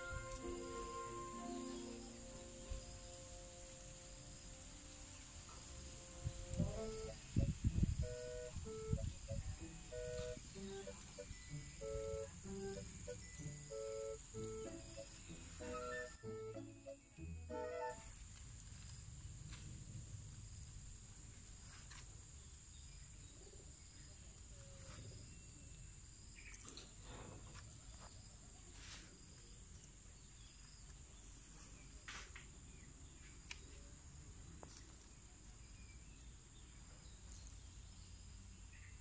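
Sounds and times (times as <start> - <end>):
high-pitched insect chorus: 0.0 - 16.8, 17.9 - 27.0, 37.0 - 39.0.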